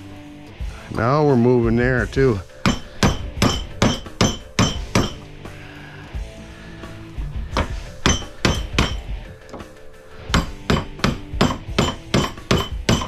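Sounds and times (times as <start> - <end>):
hammer striking metal punch: 2.6 - 5.3, 7.6 - 9.7, 10.3 - 13.0.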